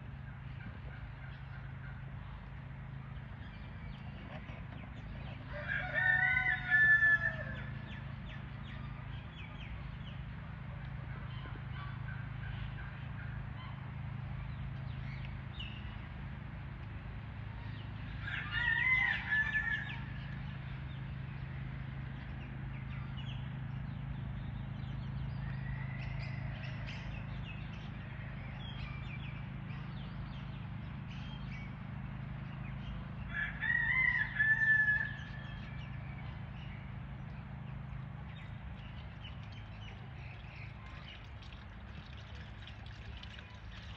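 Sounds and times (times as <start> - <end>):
rooster crowing: 5.5 - 7.7, 18.2 - 20.1, 33.3 - 35.4.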